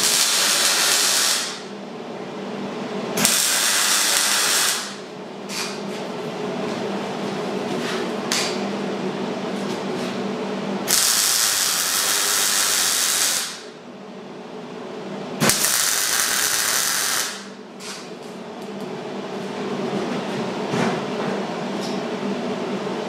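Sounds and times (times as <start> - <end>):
welder crackling hiss: 0.0 - 1.6, 3.2 - 5.0, 10.9 - 13.6, 15.5 - 17.5.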